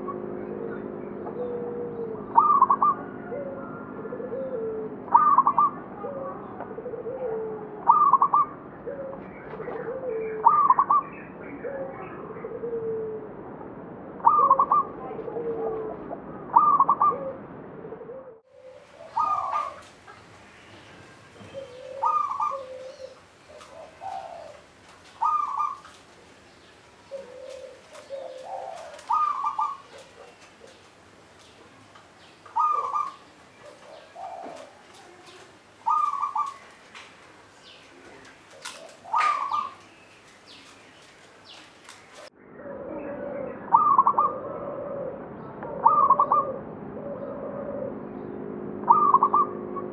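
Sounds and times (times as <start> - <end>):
dove cooing: 0.0 - 13.3, 14.2 - 40.9, 41.5 - 48.2, 48.8 - 49.9
hissy background noise: 17.4 - 42.3.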